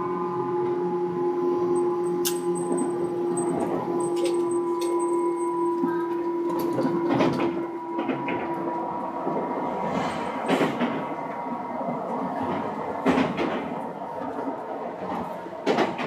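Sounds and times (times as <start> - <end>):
electric train rolling and humming: 0.0 - 16.0
sharp knocks from train wheels: 6.5 - 8.7, 10.2 - 11.2, 12.4 - 13.8, 15.0 - 16.0.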